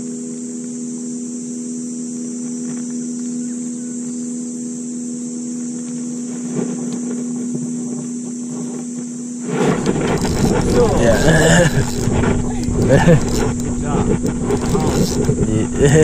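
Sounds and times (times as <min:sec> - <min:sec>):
boat motor hum: 0:00.0 - 0:16.0
insects droning: 0:00.0 - 0:16.0
fishing reel clicks and rustles: 0:09.6 - 0:16.0.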